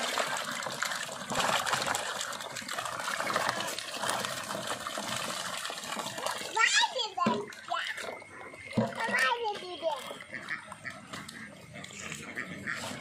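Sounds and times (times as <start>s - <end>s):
fish slapping wetly: 0.0s - 9.2s
water splashing and trickling: 0.0s - 13.0s.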